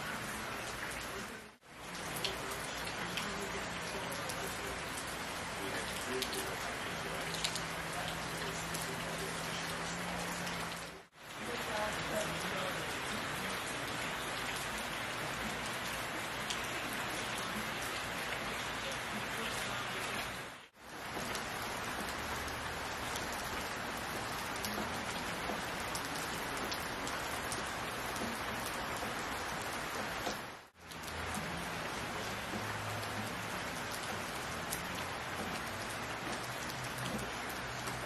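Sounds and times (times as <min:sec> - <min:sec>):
rain falling on leaves: 0:00.0 - 0:38.0.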